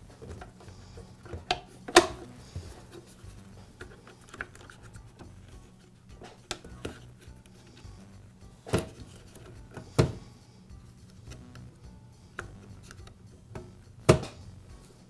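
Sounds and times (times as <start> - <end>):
plastic parts clicking and knocking: 0.1 - 3.2, 3.8 - 5.4, 6.2 - 7.7, 8.6 - 10.2.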